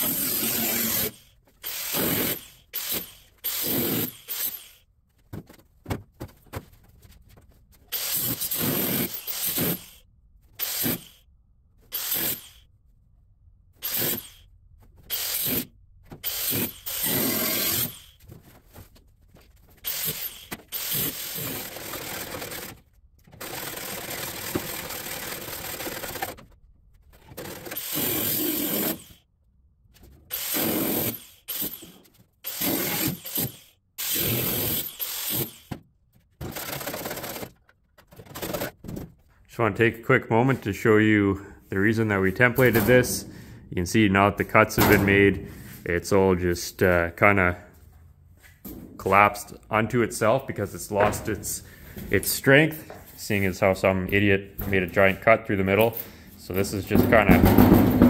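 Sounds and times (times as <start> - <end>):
power tool cutting steel: 0.0 - 4.8, 15.1 - 18.2, 30.3 - 35.7.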